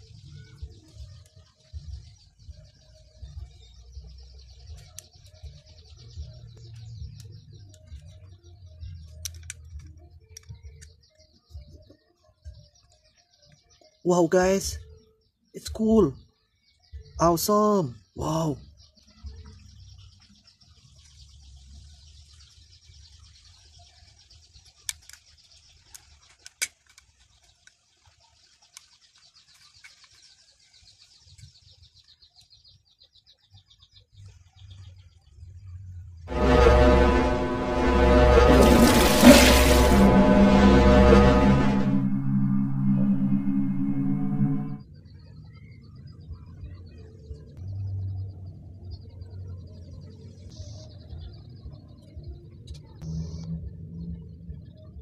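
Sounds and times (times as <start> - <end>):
plastic toy parts clicking: 25.9 - 27.1.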